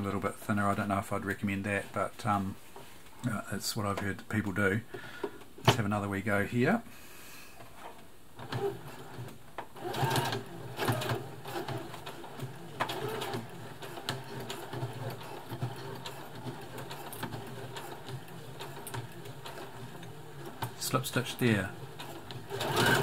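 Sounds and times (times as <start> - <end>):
sewing machine stitching: 8.4 - 23.0.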